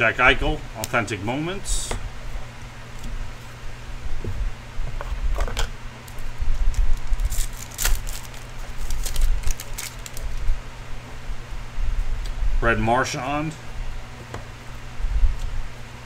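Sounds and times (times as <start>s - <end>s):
foil wrapper crinkling and tearing: 6.0s - 10.4s.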